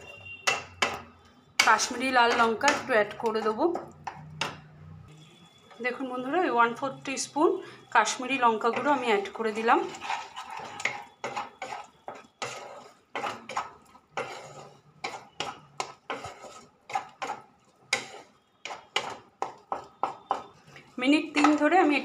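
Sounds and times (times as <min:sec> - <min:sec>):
metal spatula scraping a pan: 0:07.6 - 0:22.0.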